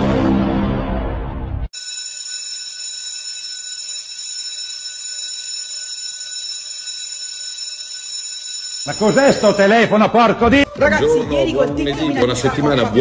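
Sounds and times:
school bell ringing: 1.7s - 10.3s.

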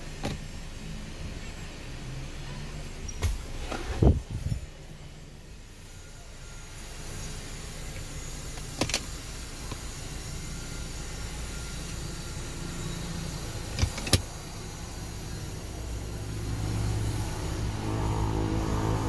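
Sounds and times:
car cabin rumble: 2.9s - 4.7s.

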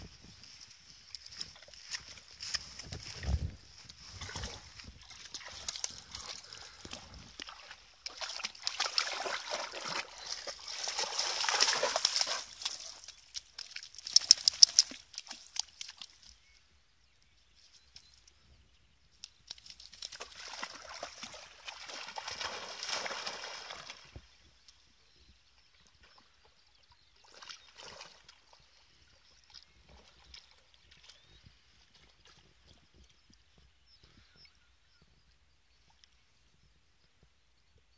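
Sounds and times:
dog splashing in water: 4.2s - 16.0s, 19.9s - 24.1s.

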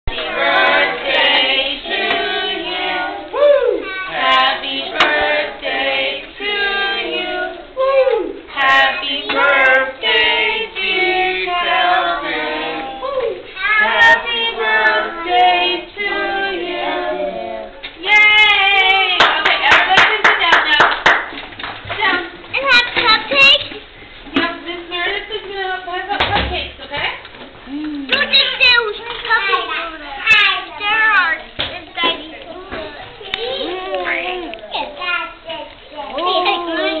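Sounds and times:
children singing: 0.1s - 7.7s, 8.6s - 17.8s.

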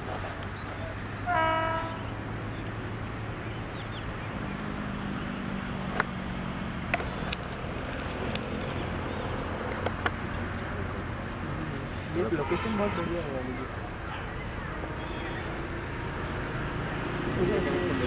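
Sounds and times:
locomotive hum and rumble: 0.0s - 18.0s.

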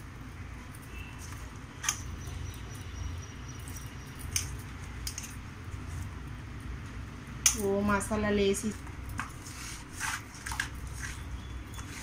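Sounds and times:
steady low hum: 0.0s - 12.0s
hands squishing wet marinade: 9.2s - 12.0s.

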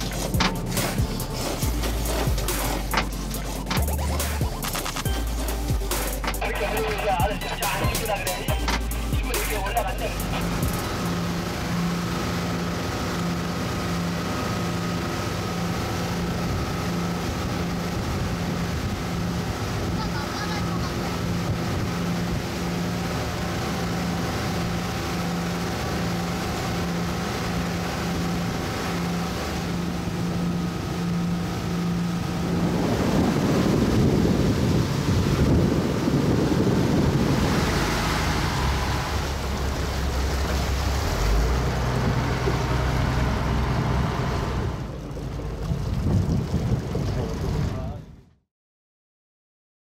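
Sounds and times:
water noise: 0.0s - 48.3s
boat engine running: 0.0s - 48.4s
wind buffeting microphone: 30.0s - 40.9s, 45.1s - 48.2s.

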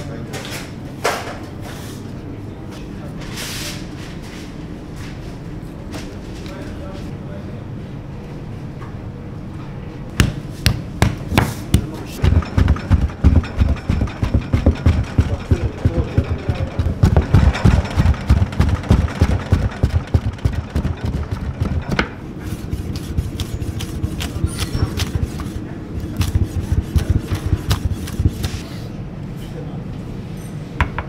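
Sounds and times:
knife chopping on wooden board: 10.2s - 15.0s, 22.8s - 28.6s.

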